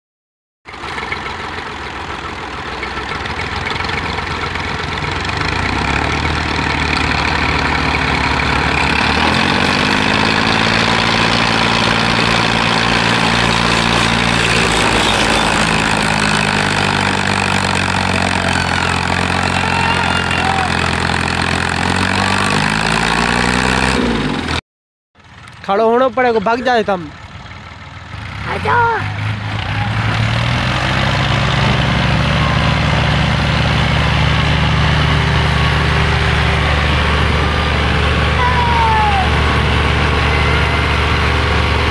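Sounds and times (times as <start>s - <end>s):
tractor diesel engine labouring: 0.6s - 24.6s, 25.2s - 41.9s.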